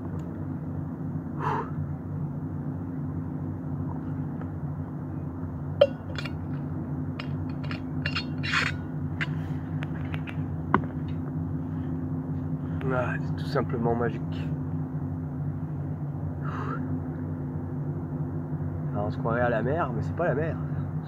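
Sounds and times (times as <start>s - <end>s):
motorboat engines droning: 0.0s - 21.0s.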